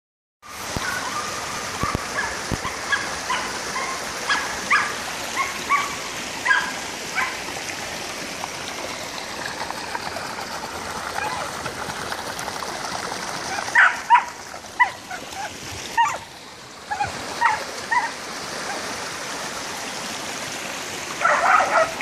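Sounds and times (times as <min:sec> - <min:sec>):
dogs barking: 0:00.8 - 0:07.4, 0:13.6 - 0:16.3, 0:16.9 - 0:18.2, 0:21.2 - 0:22.0.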